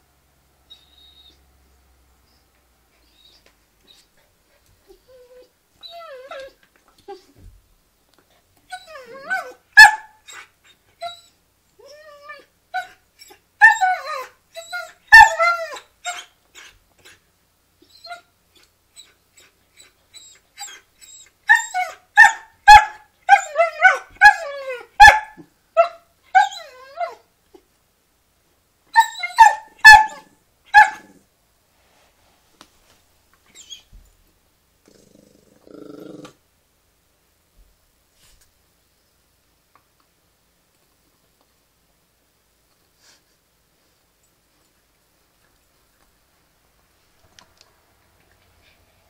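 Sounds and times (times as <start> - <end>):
dogs yipping and barking: 8.7 - 11.3, 12.2 - 16.8, 19.8 - 27.2, 28.9 - 31.2.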